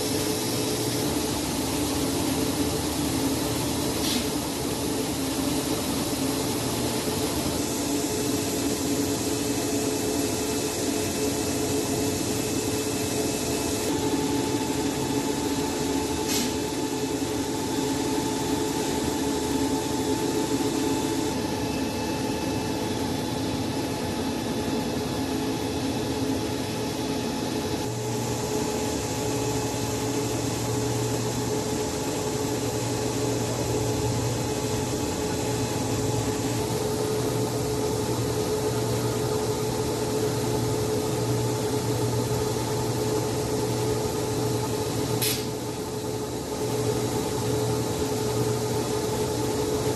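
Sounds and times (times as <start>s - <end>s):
machine motor hum: 0.0s - 49.9s
sharp click: 45.2s - 45.5s.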